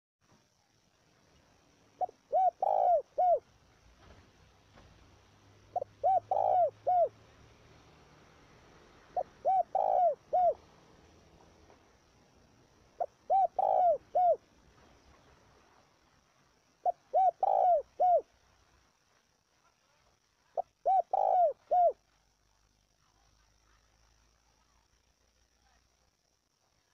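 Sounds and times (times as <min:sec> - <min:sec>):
dove cooing: 0:02.0 - 0:03.5, 0:05.6 - 0:07.3, 0:08.9 - 0:10.8, 0:13.0 - 0:14.5, 0:16.7 - 0:18.3, 0:20.6 - 0:22.0.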